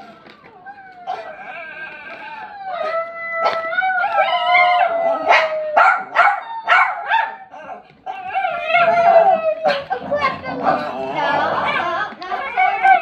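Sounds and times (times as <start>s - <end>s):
dog howling whine: 0.0s - 9.9s, 12.4s - 13.0s
dog yipping: 5.3s - 10.0s.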